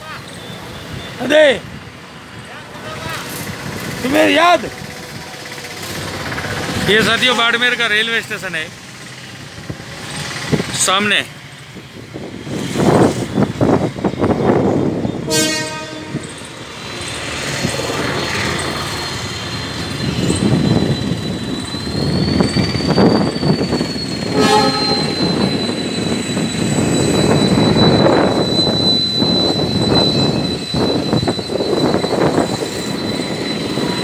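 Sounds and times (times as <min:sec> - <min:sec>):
train engine rumble: 0:00.0 - 0:34.0
locomotive horn: 0:15.3 - 0:16.3, 0:24.3 - 0:25.4.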